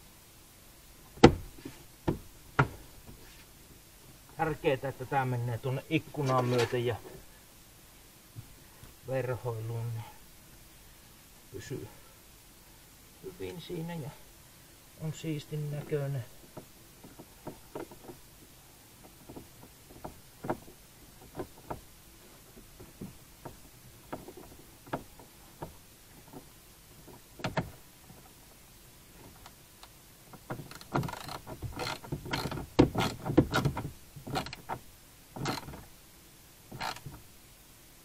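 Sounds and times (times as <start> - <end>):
knocks and rattles: 1.1 - 3.2, 15.8 - 18.3, 19.0 - 28.3, 30.3 - 35.9
plastic trim clicks and knocks: 27.4 - 27.8, 30.4 - 34.8.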